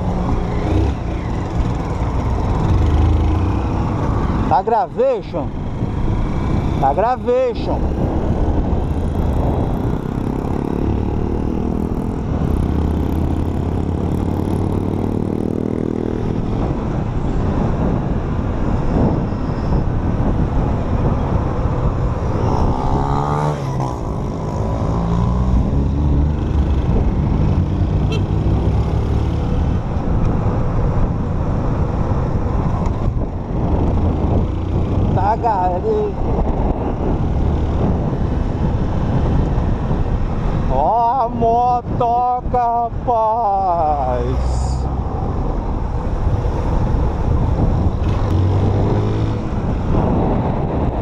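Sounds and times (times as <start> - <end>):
motorcycle engine accelerating: 7.8 - 16.6, 22.2 - 29.9.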